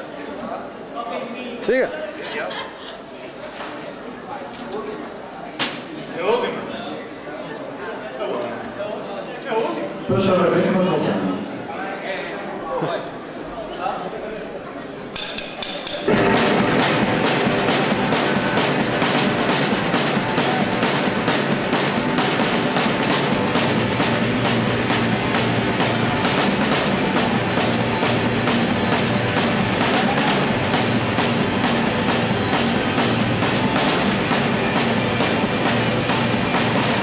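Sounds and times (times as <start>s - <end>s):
live band playing loudly: 15.2s - 37.0s
steady drumbeat: 15.2s - 37.0s.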